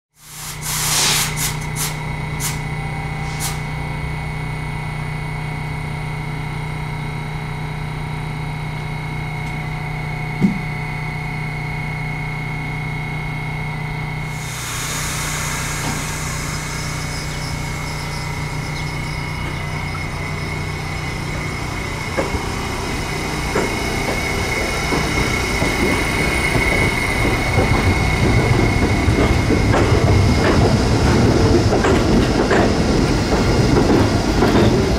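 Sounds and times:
hiss: 0:00.2 - 0:02.6, 0:14.3 - 0:18.6
subway train humming: 0:00.2 - 0:34.9
rail clatter: 0:15.6 - 0:34.9.

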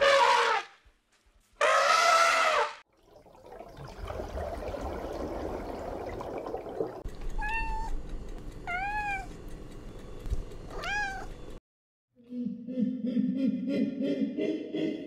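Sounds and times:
underwater rushing: 0:03.0 - 0:07.0
kitten meowing: 0:07.4 - 0:08.0, 0:10.8 - 0:11.3.

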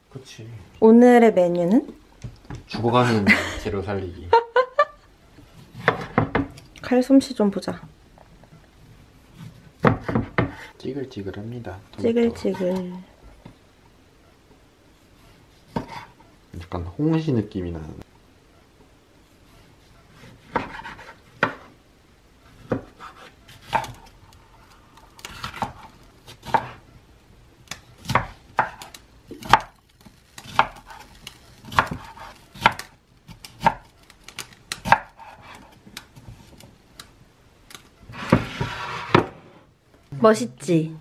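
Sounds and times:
knife chopping on wooden board: 0:05.7 - 0:06.6, 0:09.8 - 0:10.7, 0:15.7 - 0:16.1, 0:20.2 - 0:21.7, 0:22.6 - 0:24.1, 0:25.2 - 0:26.8, 0:28.0 - 0:29.8, 0:30.4 - 0:33.9, 0:34.8 - 0:35.8.

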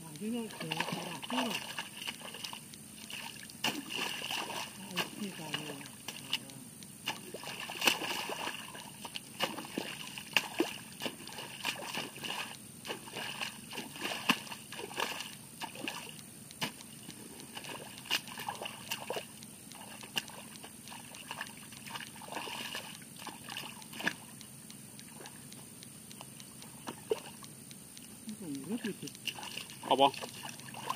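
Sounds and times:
muddy water splashing: 0:00.0 - 0:25.4, 0:26.7 - 0:27.4, 0:28.4 - 0:30.9
hoe chopping wet mud: 0:00.4 - 0:24.3.

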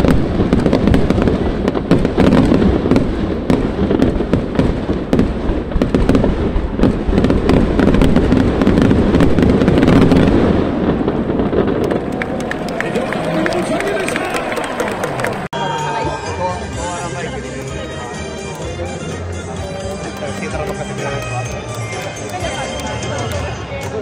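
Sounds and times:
sharp crackles: 0:00.0 - 0:14.7
fireworks bursting: 0:00.0 - 0:24.0.

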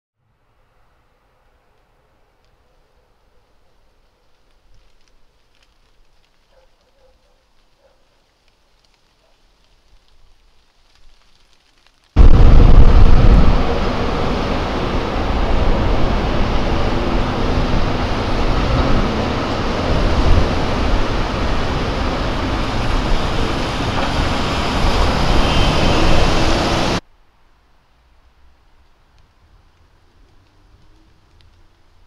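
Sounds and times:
city street traffic rumble: 0:12.2 - 0:27.0, 0:27.8 - 0:32.0
tram: 0:12.2 - 0:27.0.

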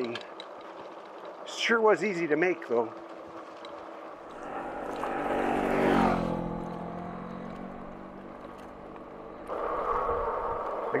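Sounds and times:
tyres on gravel: 0:00.0 - 0:09.9
electric motor hum: 0:03.5 - 0:09.6
wind noise: 0:09.4 - 0:11.0.

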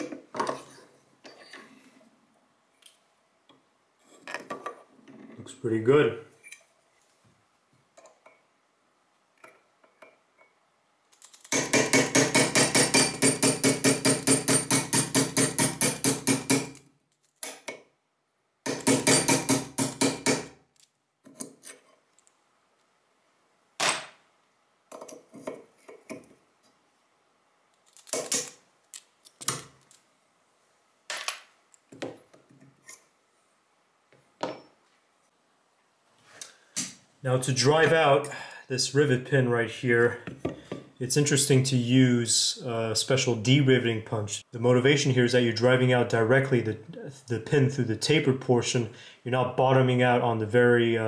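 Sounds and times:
rapid clicking of hand tools: 0:11.3 - 0:16.8.

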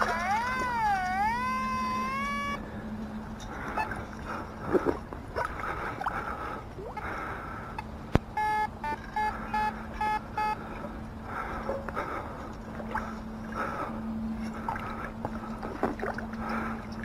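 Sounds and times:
metal detector beeps: 0:00.0 - 0:02.6, 0:08.4 - 0:10.6
water sloshing: 0:00.0 - 0:07.5, 0:11.9 - 0:17.0.

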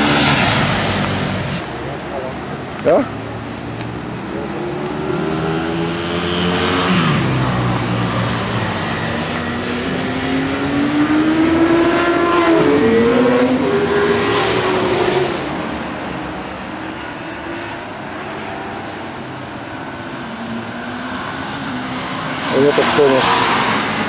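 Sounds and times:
motorcycle engines running hard: 0:00.0 - 0:15.6.

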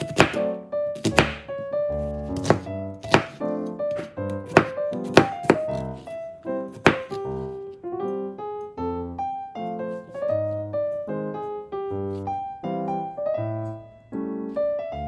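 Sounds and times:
knife chopping on cutting board: 0:00.0 - 0:06.0, 0:06.7 - 0:07.4
background piano music: 0:00.0 - 0:15.0.

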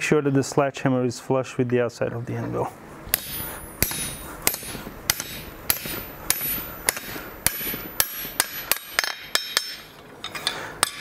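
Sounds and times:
hammer striking metal on anvil: 0:03.1 - 0:11.0.

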